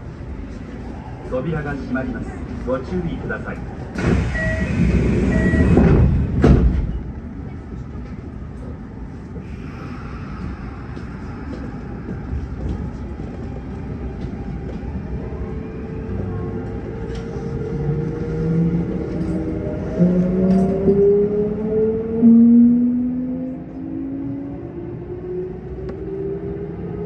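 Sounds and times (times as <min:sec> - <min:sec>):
train car humming: 0:00.0 - 0:27.0
train doors closing thud: 0:04.0 - 0:07.1.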